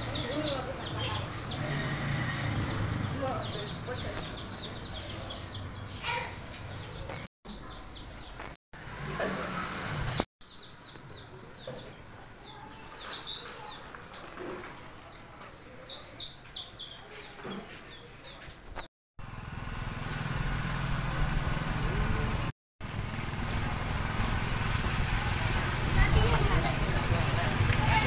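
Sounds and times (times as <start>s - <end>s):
small birds chirping: 0.0s - 8.6s, 10.1s - 18.9s
motorcycle engine running: 19.2s - 28.0s.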